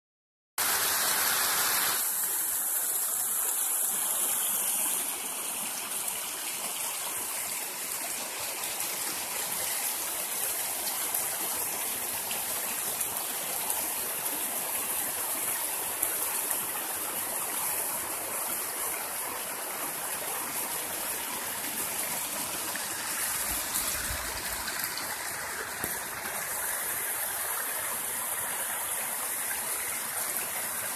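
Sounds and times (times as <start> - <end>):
stream rushing over stones: 0.6 - 30.9.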